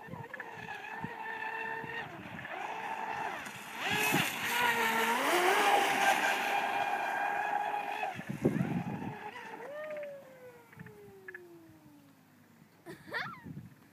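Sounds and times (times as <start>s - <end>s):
electric motor whining: 0.0s - 11.1s.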